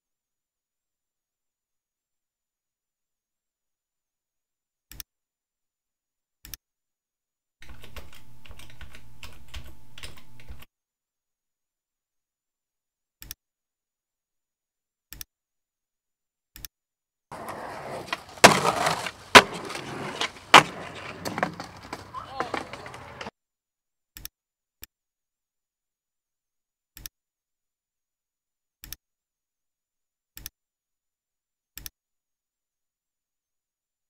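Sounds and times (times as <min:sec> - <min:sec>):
rapid keyboard typing: 0:07.6 - 0:10.7
skateboard clacks: 0:17.3 - 0:23.3
skateboard rolling on concrete: 0:17.3 - 0:23.3.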